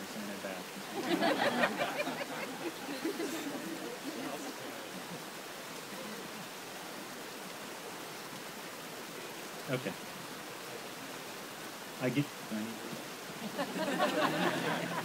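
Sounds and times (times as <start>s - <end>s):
people laughing and murmuring: 0.7s - 6.5s, 13.4s - 15.0s.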